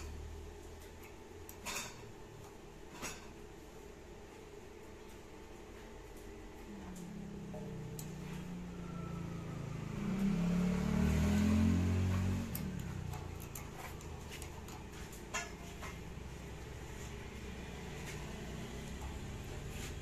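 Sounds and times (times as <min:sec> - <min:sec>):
vehicle engine hum: 0:06.2 - 0:20.0.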